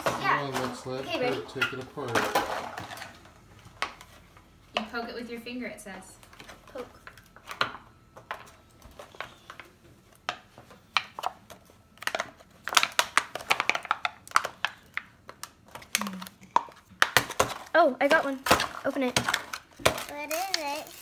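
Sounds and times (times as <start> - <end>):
fingers tapping plastic packaging: 7.0 - 20.7.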